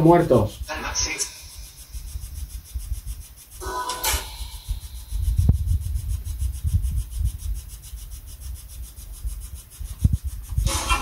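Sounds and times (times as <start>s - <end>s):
wind buffeting microphone: 4.2s - 11.0s.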